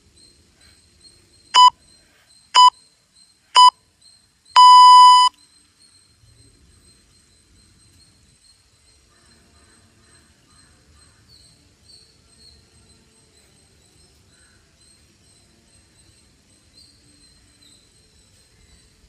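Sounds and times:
timer countdown beeps: 1.6 - 1.8, 2.6 - 2.8, 3.6 - 3.8, 4.6 - 5.4.

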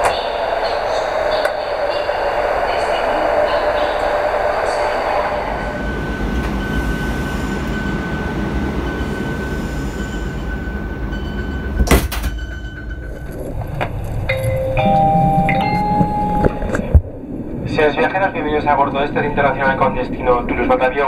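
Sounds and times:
train low rumble: 0.0 - 21.0
steady high tone: 2.8 - 17.0
door shutting clunk: 11.8 - 12.6.

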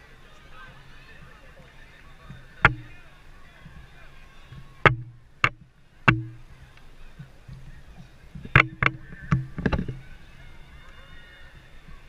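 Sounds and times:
sharp knocks with low ring: 2.6 - 3.0, 4.9 - 6.4.

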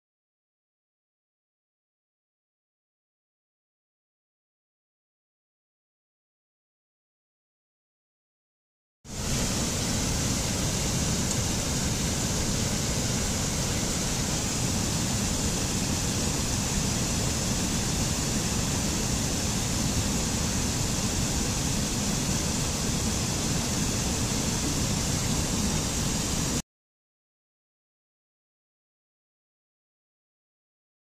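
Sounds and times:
mountain stream rushing over boulders: 9.1 - 26.6.

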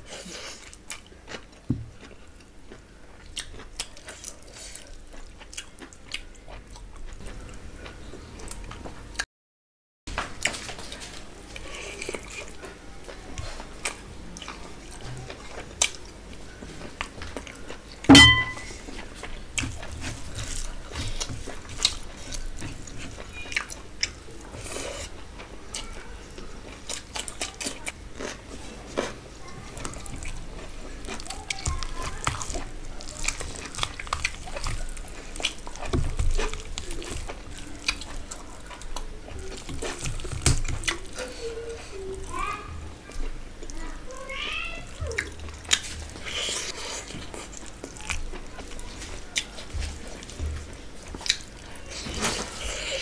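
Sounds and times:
wet squishing of rice: 0.0 - 7.9, 18.7 - 53.0
chewing and eating sounds: 0.0 - 9.2, 10.1 - 53.0
sharp ringing clink: 18.1 - 18.7.

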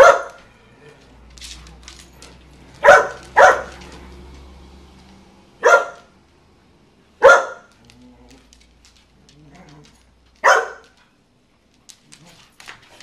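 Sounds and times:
dog barking: 0.0 - 0.4, 2.8 - 3.9, 5.6 - 6.1, 7.2 - 7.7, 10.4 - 11.0.

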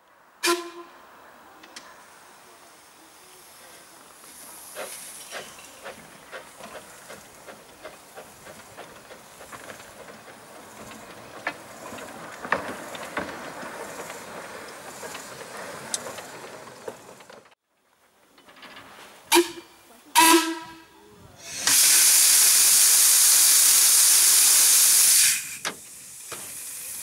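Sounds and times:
steam locomotive hissing: 1.8 - 17.5, 19.2 - 27.0
wheels clicking over rail joints: 3.7 - 20.8, 25.3 - 27.0.

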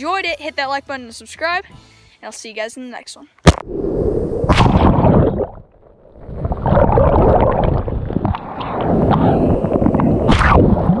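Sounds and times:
sharp splash: 4.4 - 5.8
wind buffeting microphone: 6.4 - 11.0.

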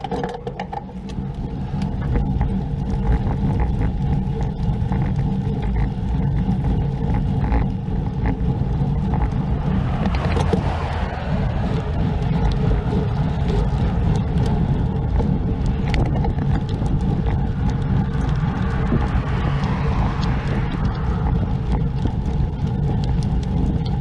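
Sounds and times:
wind and road rumble: 0.0 - 24.0
passing cars: 8.2 - 24.0.

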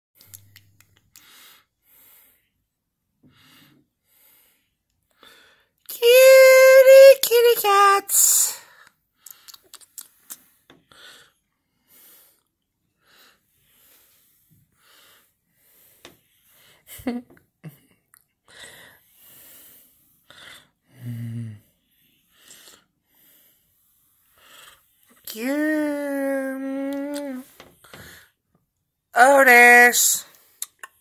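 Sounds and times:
high wavering voice: 5.9 - 8.6, 25.3 - 27.4.

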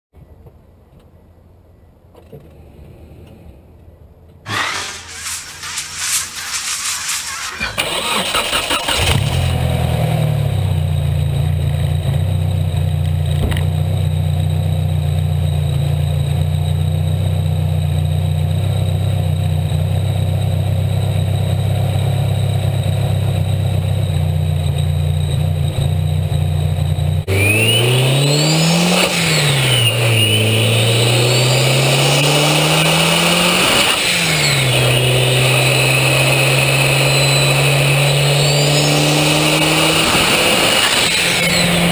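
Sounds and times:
turbocharged engine idling and revving: 4.5 - 41.9
turbo whistle: 27.3 - 32.2, 33.7 - 41.9.

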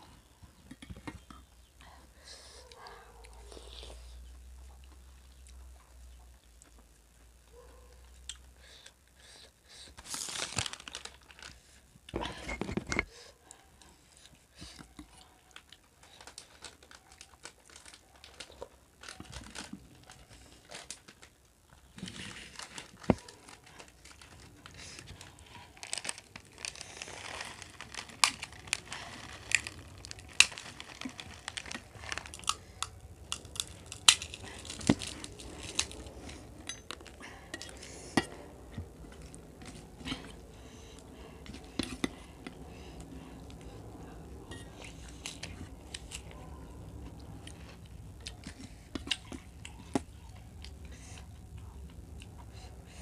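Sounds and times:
fried snacks crackling: 10.0 - 11.8, 15.5 - 37.4.

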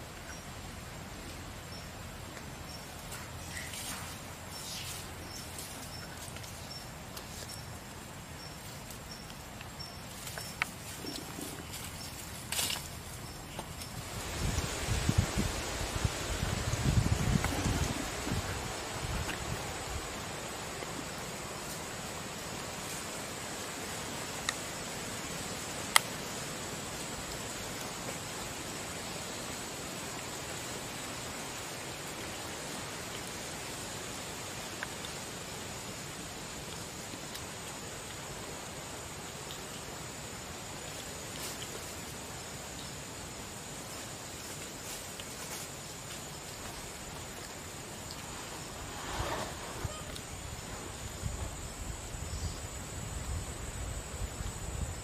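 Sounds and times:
steady low hiss: 0.0 - 55.0
soft rustle: 2.1 - 23.4, 40.7 - 43.0, 43.8 - 52.6
faint high-pitched tone: 49.8 - 50.2.

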